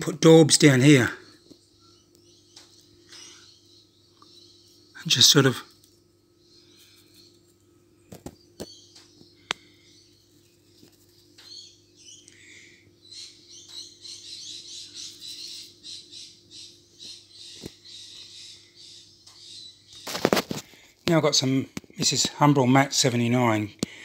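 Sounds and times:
steady low hum: 0.0 - 24.0
small bird chirping: 0.9 - 22.4.

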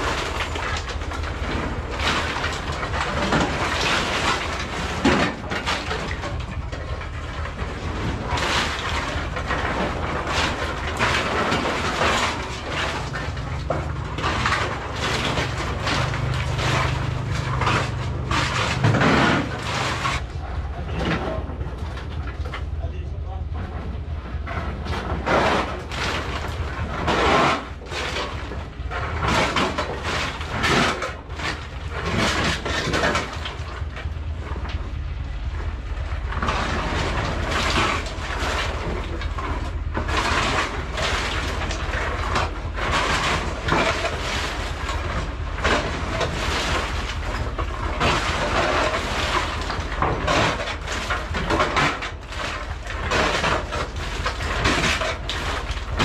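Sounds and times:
coconut pieces clattering: 0.0 - 22.6
steady low rumble: 0.0 - 56.0.

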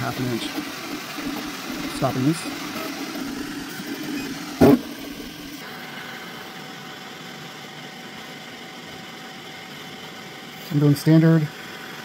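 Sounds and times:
printer fans whirring: 0.0 - 12.0
stepper motors humming: 0.0 - 12.0.

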